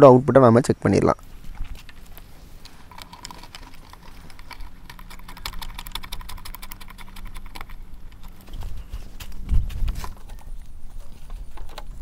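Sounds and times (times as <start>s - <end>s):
rapid light clicks and taps: 1.8s - 10.7s.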